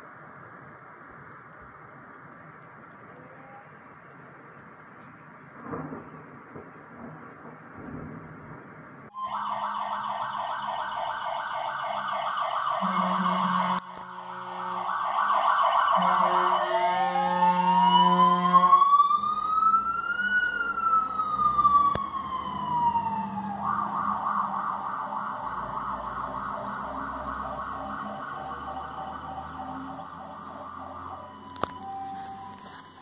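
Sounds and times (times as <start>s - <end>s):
fire engine siren: 9.1s - 33.0s
air horn blasts: 12.8s - 15.0s, 15.8s - 18.9s.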